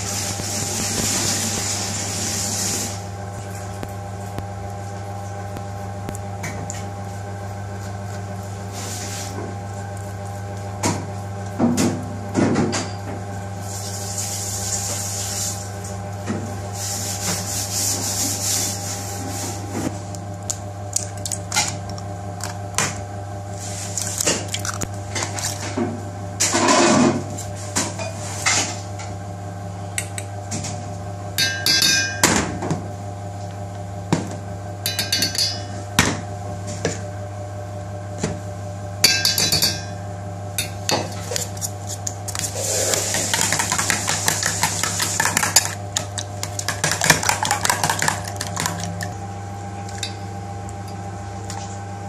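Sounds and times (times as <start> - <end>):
steady mechanical hum: 0.0 - 52.0
clinks and knocks: 34.9 - 35.7
metal spoon scraping steel bowl: 34.9 - 35.7.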